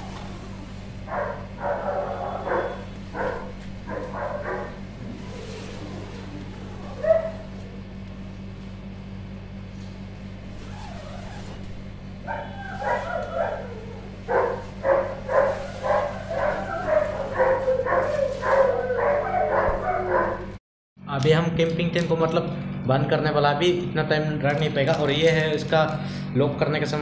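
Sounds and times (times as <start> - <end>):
steady low hum: 0.0 - 27.0
dog barking: 1.1 - 4.8, 6.8 - 7.6, 12.2 - 20.5.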